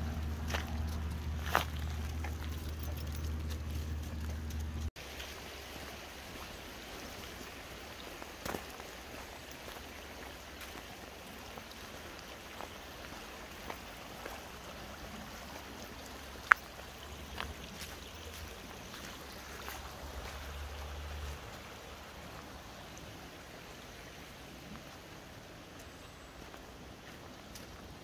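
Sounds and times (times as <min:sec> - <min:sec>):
low hum: 0:00.0 - 0:04.9
footsteps on fallen leaves: 0:00.0 - 0:05.4, 0:16.1 - 0:22.4, 0:25.8 - 0:27.9
stream babbling over rocks: 0:00.0 - 0:28.0.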